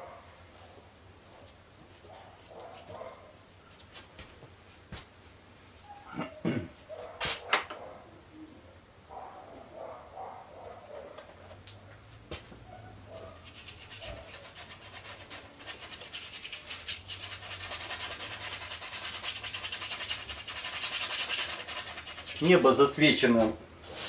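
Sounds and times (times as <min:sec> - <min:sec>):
paintbrush scrubbing on canvas: 0:13.3 - 0:24.0.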